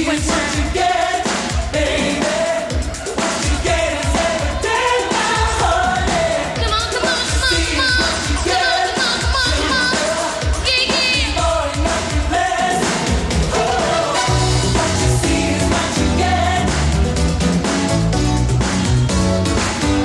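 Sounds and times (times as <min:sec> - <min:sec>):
kick drum beat: 0:01.4 - 0:08.6
woman singing: 0:05.2 - 0:11.6
synthesizer backing: 0:12.8 - 0:20.0.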